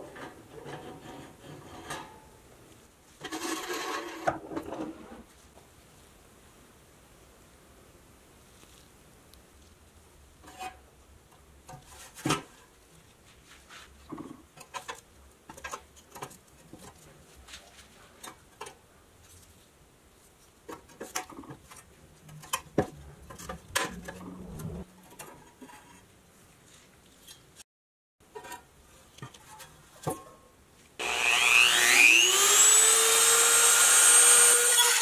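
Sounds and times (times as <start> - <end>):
toy truck scraping on wood: 3.2 - 5.3, 23.4 - 24.9.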